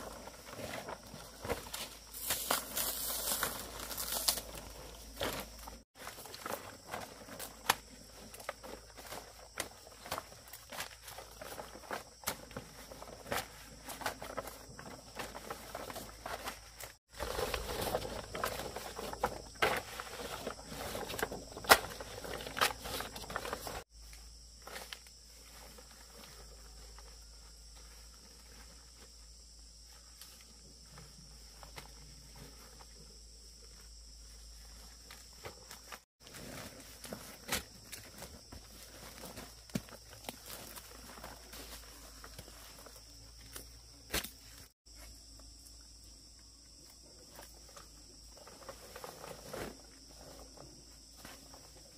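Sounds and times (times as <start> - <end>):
footsteps in leaves: 0.0 - 23.9.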